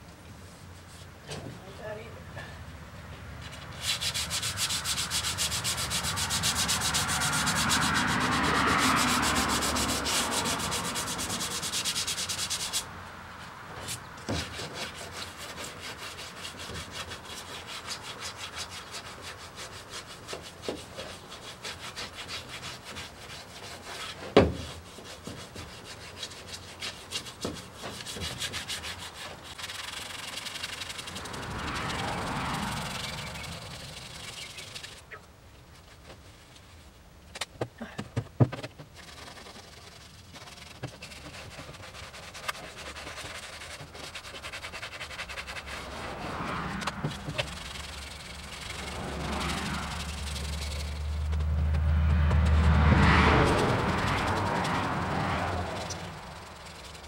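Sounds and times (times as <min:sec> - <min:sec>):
sandpaper rubbing by hand: 0:03.5 - 0:12.9, 0:13.8 - 0:35.1, 0:38.9 - 0:51.6.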